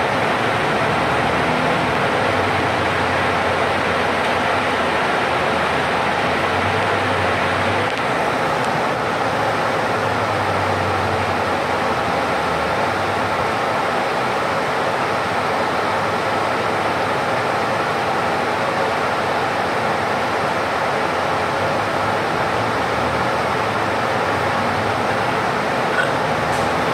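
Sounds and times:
low engine drone: 0.0s - 13.4s, 21.3s - 26.9s
engine and road noise: 0.0s - 26.9s.

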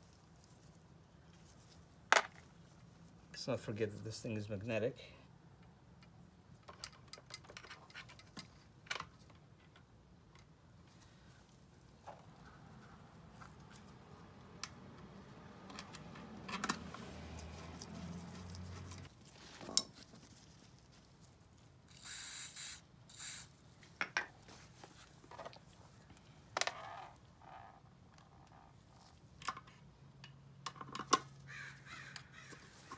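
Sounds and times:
short hissing bursts: 21.9s - 23.6s.

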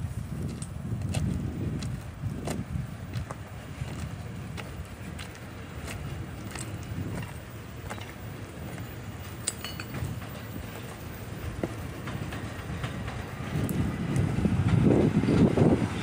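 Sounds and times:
sharp metallic clink: 9.4s - 10.5s.

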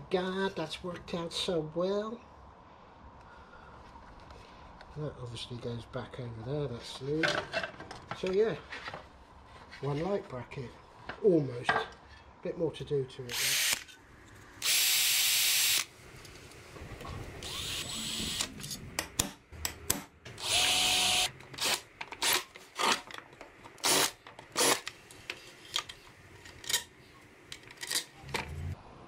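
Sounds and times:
power drill whining: 13.3s - 13.8s, 14.6s - 15.9s, 17.4s - 18.5s, 20.4s - 22.4s, 23.8s - 24.9s.

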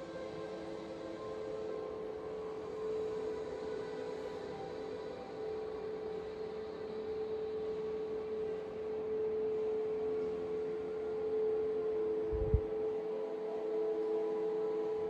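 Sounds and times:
held pure tone drone: 0.0s - 15.0s
lower drone tone: 8.8s - 15.0s.

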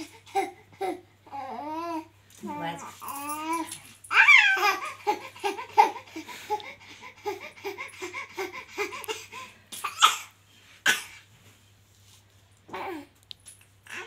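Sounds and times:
baby laughing: 4.1s - 10.3s.

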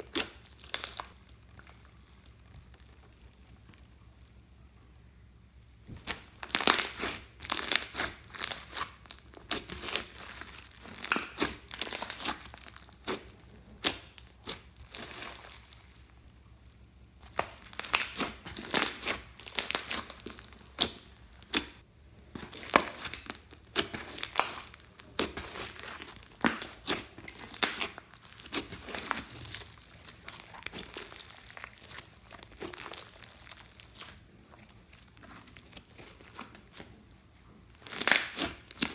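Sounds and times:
slime crackling and popping: 0.0s - 4.0s, 5.9s - 16.3s, 17.2s - 37.0s, 37.7s - 38.9s.

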